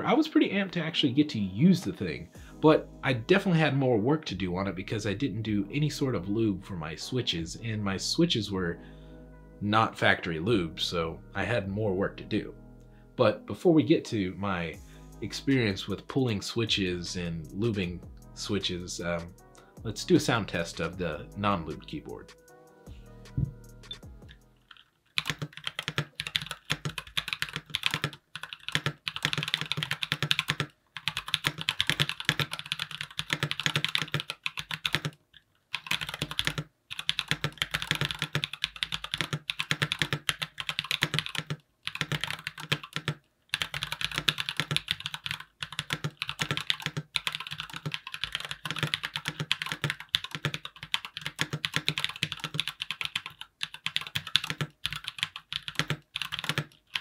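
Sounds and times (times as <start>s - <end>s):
mechanical keyboard typing: 24.7s - 57.0s.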